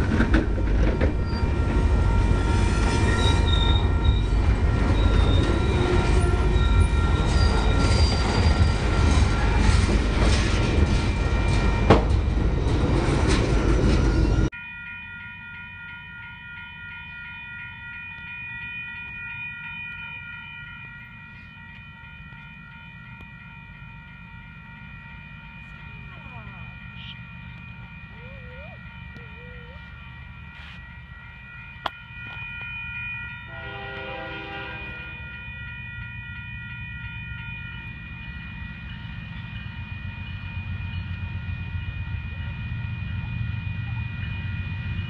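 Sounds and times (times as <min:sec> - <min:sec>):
freight train rumbling and clanking: 0:00.0 - 0:14.5, 0:20.8 - 0:45.0
crossing bell ringing: 0:00.0 - 0:45.0.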